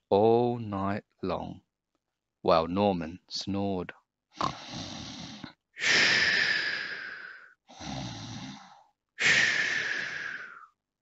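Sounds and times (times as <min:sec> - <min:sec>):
person imitating snoring: 0:04.4 - 0:10.7.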